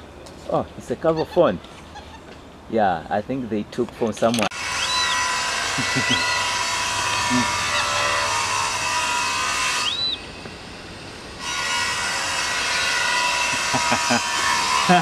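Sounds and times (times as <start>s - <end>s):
loud hissing drone: 4.5s - 15.0s
bird chirps: 4.8s - 5.3s, 9.8s - 10.3s.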